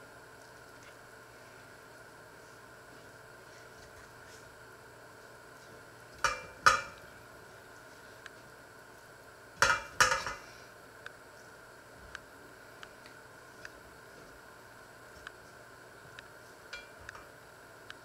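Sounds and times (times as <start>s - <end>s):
pots clinking: 6.2s - 7.0s, 9.6s - 10.5s, 16.7s - 17.3s.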